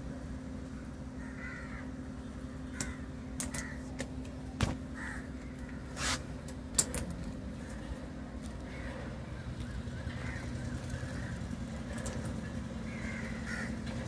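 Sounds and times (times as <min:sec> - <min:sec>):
steady low hum: 0:00.0 - 0:14.0
crows cawing: 0:01.2 - 0:02.0, 0:02.7 - 0:03.9, 0:04.9 - 0:06.0, 0:08.6 - 0:14.0
short hiss: 0:06.0 - 0:06.3.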